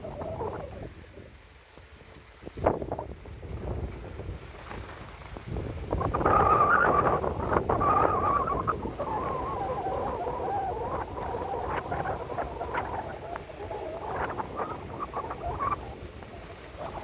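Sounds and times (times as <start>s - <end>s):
wind on microphone: 0.0s - 17.0s
skis sliding on snow: 0.1s - 17.0s
snow squeaking: 4.5s - 17.0s
wavering squeal: 6.1s - 16.0s.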